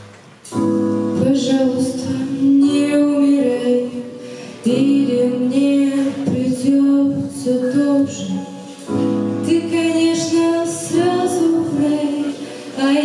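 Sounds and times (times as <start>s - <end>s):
girl singing pop song: 1.1s - 13.0s.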